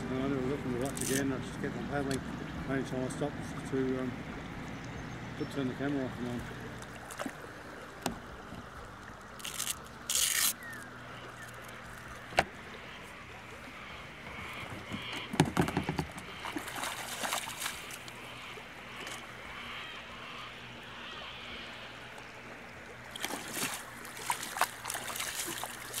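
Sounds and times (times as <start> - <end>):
water sloshing around legs: 0.8 - 2.6, 3.3 - 20.2, 21.5 - 26.0
splashes and knocks: 14.6 - 18.2, 23.1 - 26.0.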